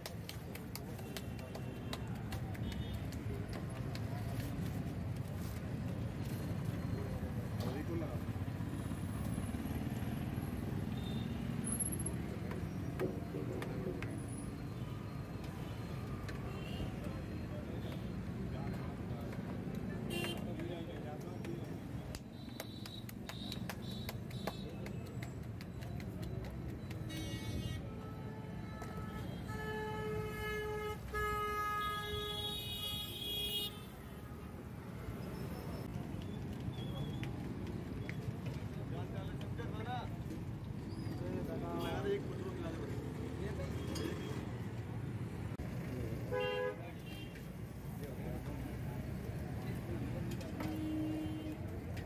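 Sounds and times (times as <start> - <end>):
street traffic rumble: 0.0 - 52.0
vehicle horns honking: 27.1 - 34.6, 46.3 - 47.3.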